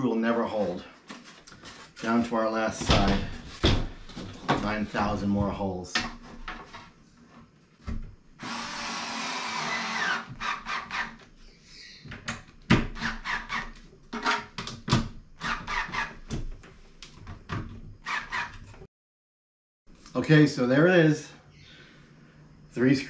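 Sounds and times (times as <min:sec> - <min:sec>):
electric screwdriver running: 0:08.4 - 0:10.3.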